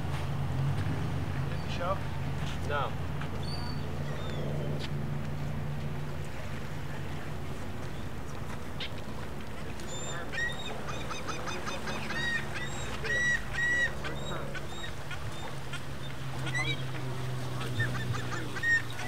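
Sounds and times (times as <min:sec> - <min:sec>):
birds calling: 0:03.3 - 0:04.9, 0:07.8 - 0:19.0.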